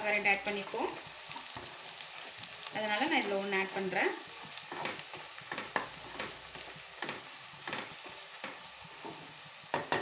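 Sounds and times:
onions sizzling in oil: 0.0 - 10.0
wooden spatula scraping pan: 4.4 - 9.4.

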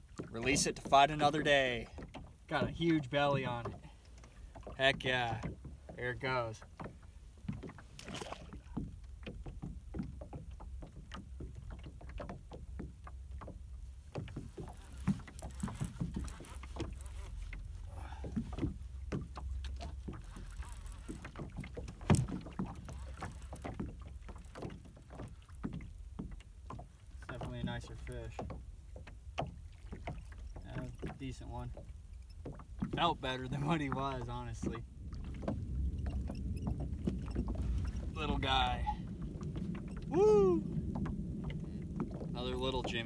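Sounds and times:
water lapping against boat hull: 0.0 - 43.0
wind on microphone: 34.6 - 43.0.

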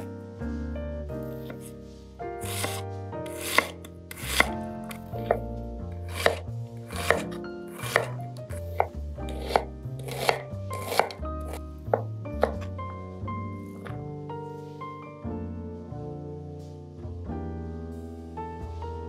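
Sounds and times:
knife chopping on wooden board: 1.4 - 1.7, 2.4 - 12.7.

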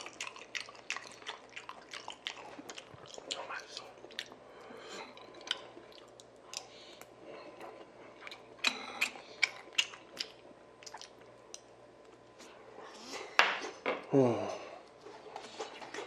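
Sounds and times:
close chewing: 0.0 - 12.4
wet mouth clicks and smacks: 5.4 - 7.1, 8.2 - 12.2.

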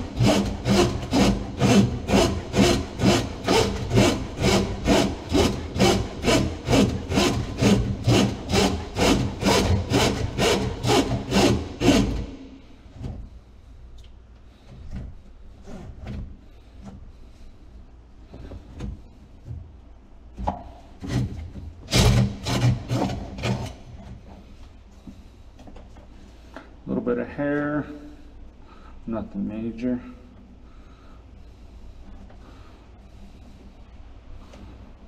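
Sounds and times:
drain snake cable rasping: 0.0 - 12.3.

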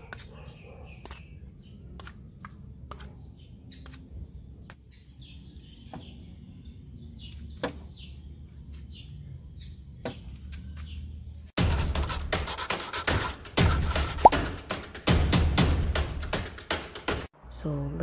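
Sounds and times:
birds chirping: 0.0 - 14.3.

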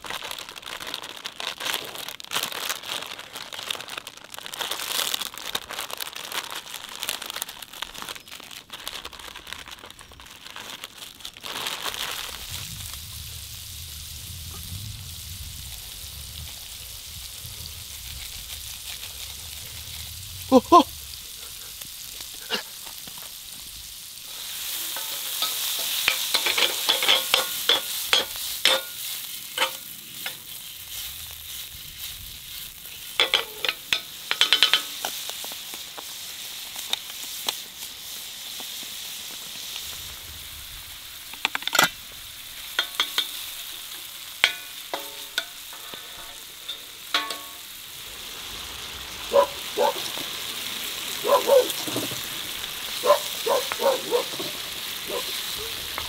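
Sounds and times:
food sizzling in a pan: 0.0 - 56.0
utensil clattering against pan: 24.9 - 28.9, 33.2 - 35.0.

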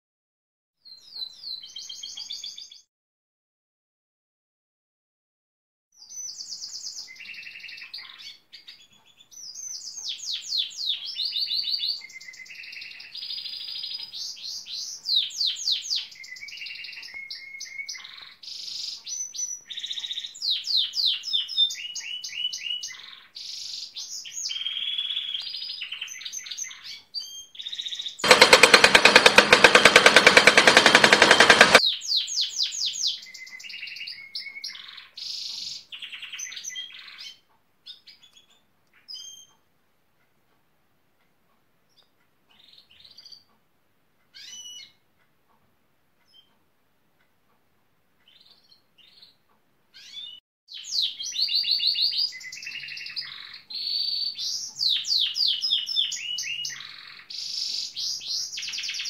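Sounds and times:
canary singing trills: 6.0 - 28.3, 44.3 - 45.0, 48.2 - 59.0
very rapid loud rattle: 28.2 - 31.8.

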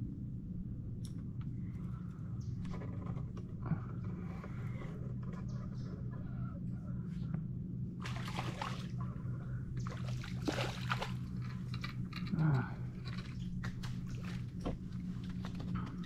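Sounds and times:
steady low hum: 0.0 - 16.0
fish splashing in water: 8.0 - 9.0, 9.8 - 11.4.

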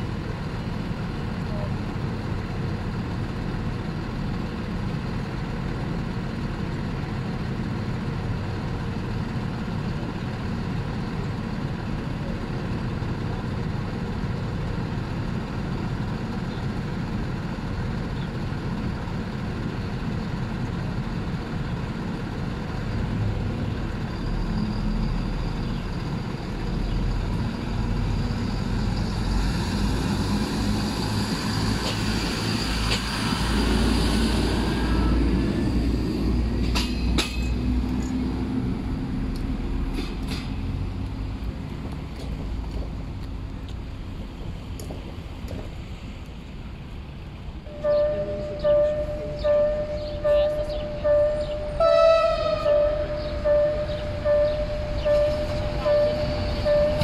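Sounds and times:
diesel engine idling: 37.6 - 57.0.

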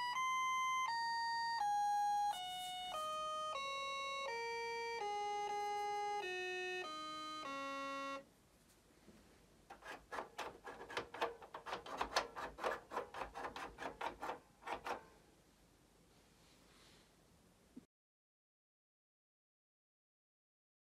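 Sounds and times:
electronic organ held notes: 0.0 - 8.2.

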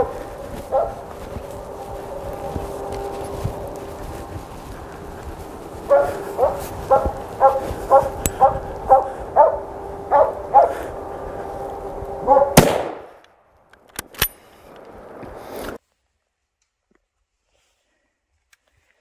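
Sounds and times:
dog barking: 0.0 - 1.1, 5.8 - 10.9, 12.2 - 12.6
rifle shot with echo: 12.6 - 13.2.

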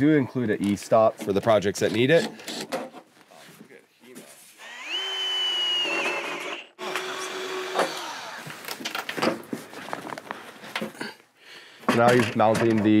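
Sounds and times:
cordless drill whining: 4.6 - 8.8
knocks and clatter of handling: 8.7 - 11.2, 11.8 - 13.0.

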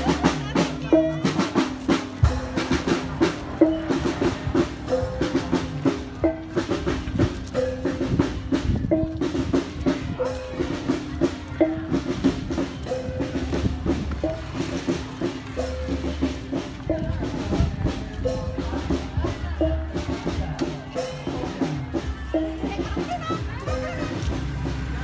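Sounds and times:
drum strikes: 0.0 - 25.0.

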